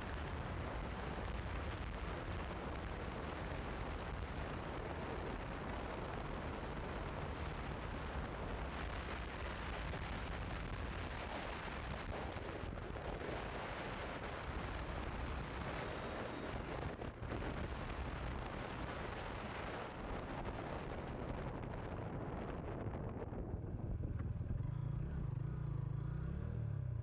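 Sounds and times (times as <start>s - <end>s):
wind buffeting microphone: 16.2s - 24.5s
motorcycle engine running: 23.4s - 27.0s.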